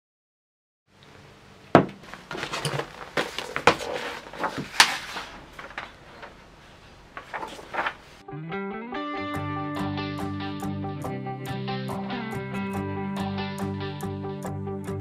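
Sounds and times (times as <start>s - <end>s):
knocks on wooden desk: 1.8s - 2.0s
pages rustling: 2.0s - 8.2s.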